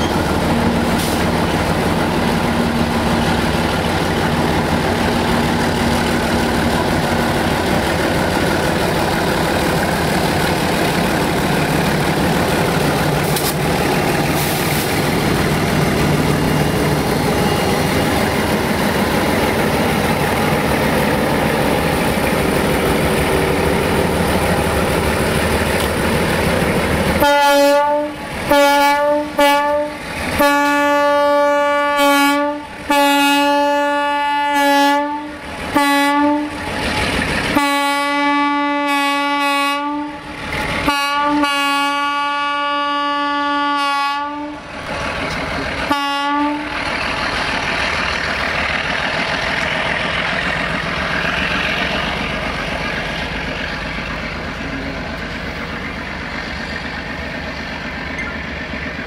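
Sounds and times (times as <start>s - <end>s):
locomotive horn blasts: 27.2s - 36.6s, 37.5s - 44.6s, 45.9s - 46.8s.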